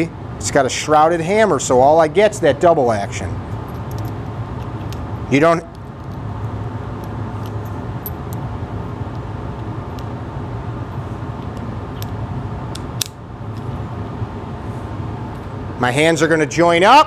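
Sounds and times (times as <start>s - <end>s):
low background hum: 0.0s - 17.0s
revolver cylinder closing click: 11.4s - 13.7s.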